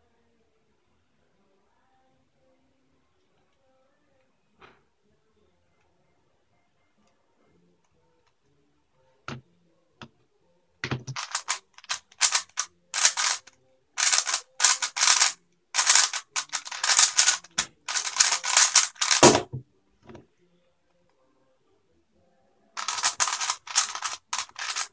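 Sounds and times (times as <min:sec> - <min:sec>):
speedcube clacking: 0:10.9 - 0:19.5, 0:22.8 - 0:24.9.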